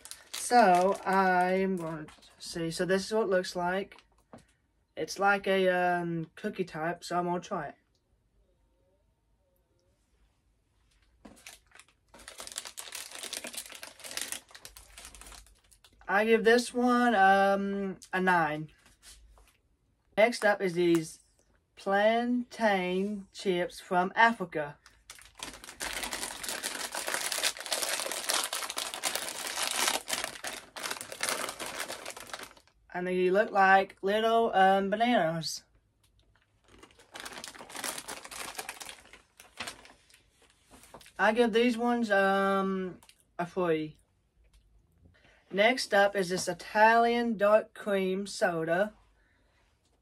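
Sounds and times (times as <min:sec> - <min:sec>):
snack wrapper crinkling: 0:00.0 - 0:02.2, 0:11.3 - 0:16.1, 0:24.8 - 0:32.8, 0:36.2 - 0:40.2.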